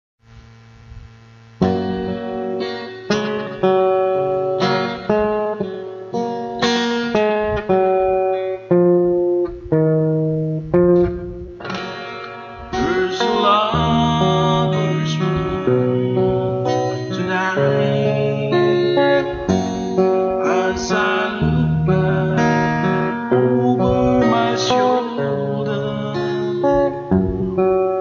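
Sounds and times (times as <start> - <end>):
acoustic guitar plucking: 1.5 - 28.0
man singing: 12.7 - 27.2.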